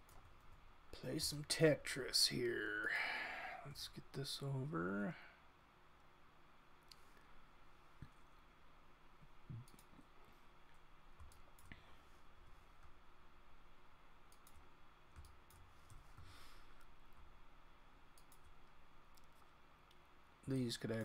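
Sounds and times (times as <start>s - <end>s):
faint computer mouse clicks: 14.3s - 14.6s.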